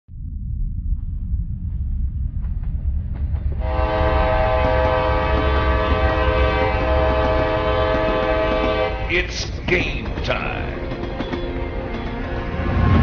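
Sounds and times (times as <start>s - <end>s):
diesel locomotive rumble: 1.0s - 13.0s
locomotive air horn chord: 3.6s - 9.4s
wheels clicking on rail joints: 4.4s - 12.4s.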